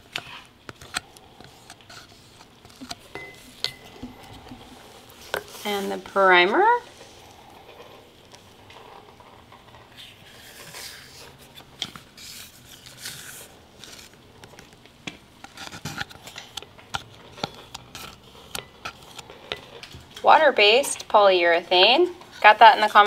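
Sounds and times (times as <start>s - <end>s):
stir stick scraping primer: 0.0s - 14.2s.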